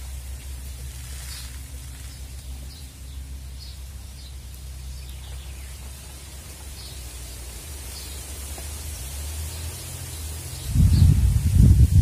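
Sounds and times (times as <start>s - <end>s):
low rumble and hiss: 0.0s - 12.0s.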